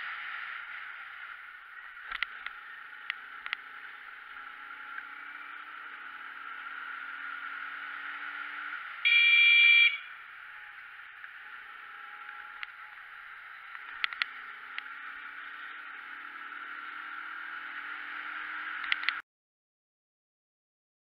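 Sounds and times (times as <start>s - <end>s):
motorcycle engine: 0.0s - 19.2s
vehicle horn blaring: 9.0s - 10.2s.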